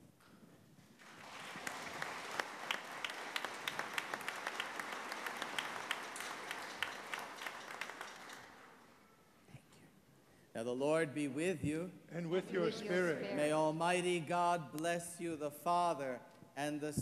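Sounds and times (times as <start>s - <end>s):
congregation applauding: 1.0s - 9.3s.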